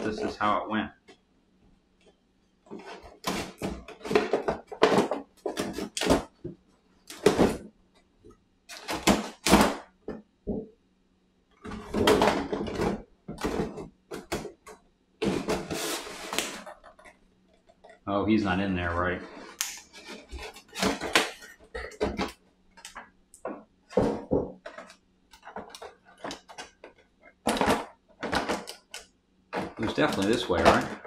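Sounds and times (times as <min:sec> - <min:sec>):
plastic miniatures clacking: 0:24.6 - 0:31.0.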